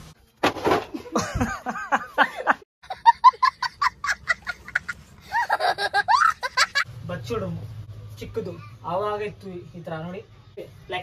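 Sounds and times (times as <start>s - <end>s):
young child laughing: 2.9s - 6.9s.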